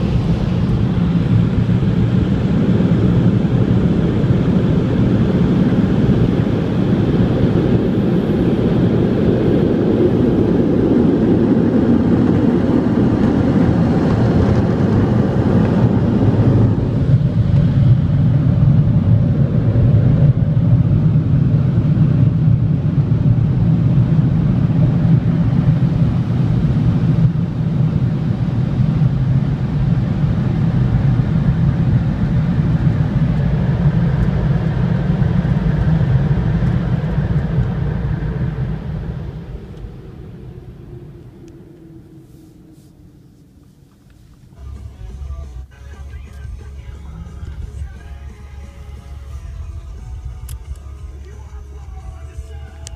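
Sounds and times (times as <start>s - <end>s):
air dryer blower rushing: 0.0s - 22.6s.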